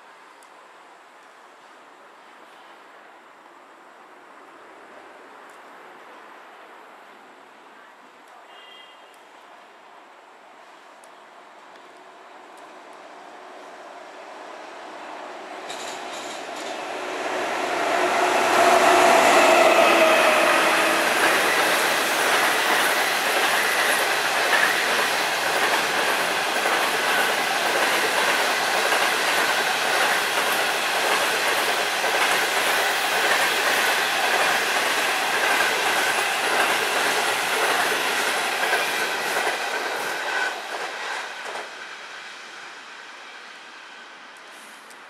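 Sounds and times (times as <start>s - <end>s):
train coaches rumbling: 12.2s - 44.6s
electric locomotive humming: 13.1s - 44.5s.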